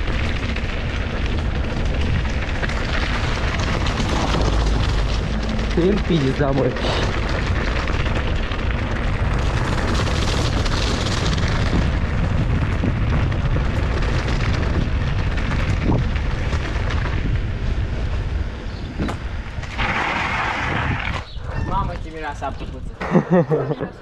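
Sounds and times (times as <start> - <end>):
bike tyres crunching over gravel: 0.0 - 22.6
wind buffeting microphone: 0.0 - 24.0.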